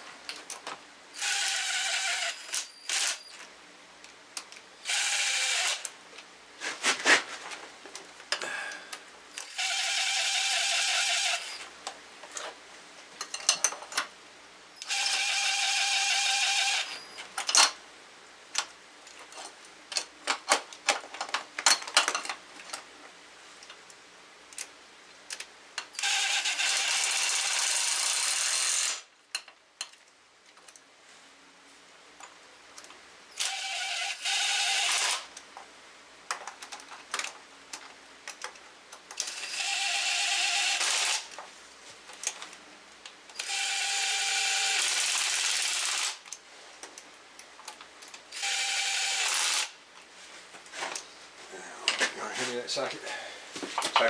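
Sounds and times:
cordless drill motor whine: 1.2s - 3.4s, 4.8s - 5.9s, 9.4s - 11.6s, 14.8s - 17.1s, 26.0s - 29.0s, 33.4s - 35.2s, 39.2s - 41.2s, 43.4s - 46.1s, 48.3s - 49.7s.

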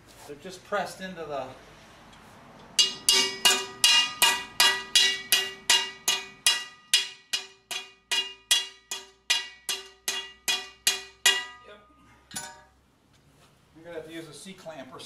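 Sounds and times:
hammer striking metal bar: 2.8s - 12.7s.

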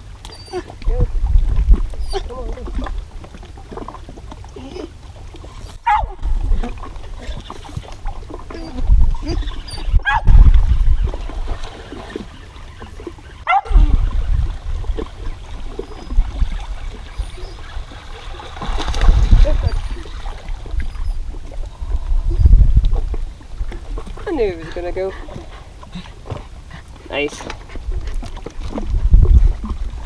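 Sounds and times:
dog whining and squealing: 0.3s - 0.8s, 1.9s - 2.5s, 4.6s - 4.9s, 8.5s - 10.3s
low gusty rumbling: 8.0s - 11.7s, 13.5s - 17.9s, 18.6s - 25.8s, 27.6s - 30.0s.

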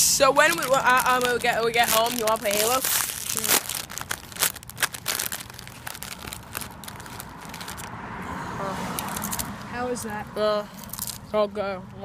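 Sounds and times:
chip bag crinkling: 0.2s - 7.9s, 10.8s - 11.2s.

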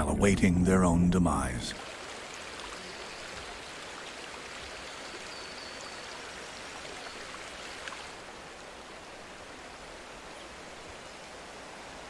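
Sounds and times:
river water running over stones: 1.7s - 12.0s.

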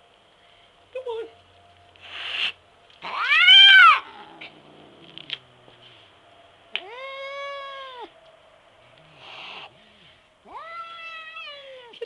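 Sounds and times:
cat yowling: 2.2s - 4.8s, 6.7s - 8.2s, 10.4s - 12.0s.

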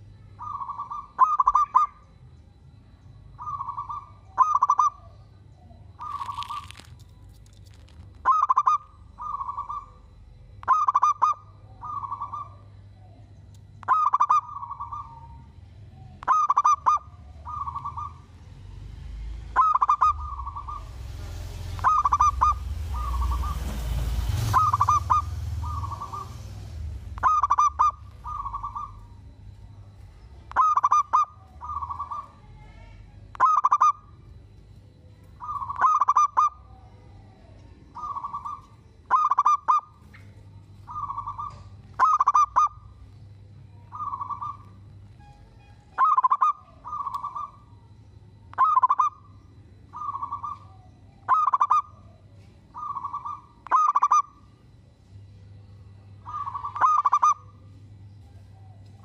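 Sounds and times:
dove cooing: 0.0s - 2.0s, 3.3s - 18.6s, 19.2s - 32.6s, 33.2s - 34.4s, 35.3s - 45.0s, 46.0s - 47.8s, 49.9s - 54.5s, 56.2s - 57.7s.

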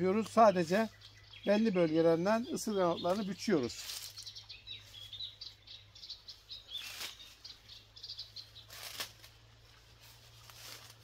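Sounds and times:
small birds chirping: 0.0s - 11.0s
knife cutting plant stems: 8.7s - 9.4s.

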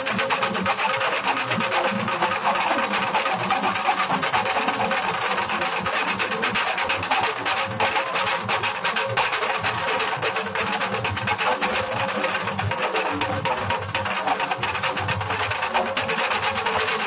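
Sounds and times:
small drums fast stick rolls: 0.0s - 17.0s
large drums beating: 0.2s - 16.8s.

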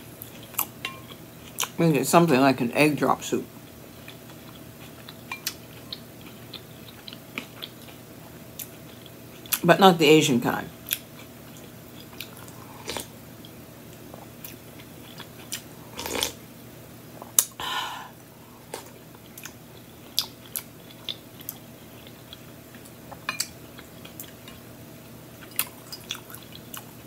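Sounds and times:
person chewing: 0.2s - 1.8s, 3.9s - 9.6s, 10.8s - 16.4s, 18.6s - 24.7s, 25.4s - 27.0s
person eating soup: 10.9s - 13.1s, 14.1s - 16.4s.

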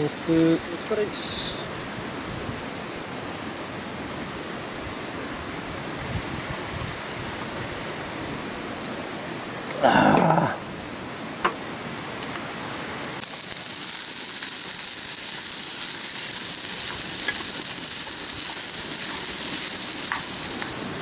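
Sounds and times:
fried rice sizzling in a pan: 13.2s - 21.0s.

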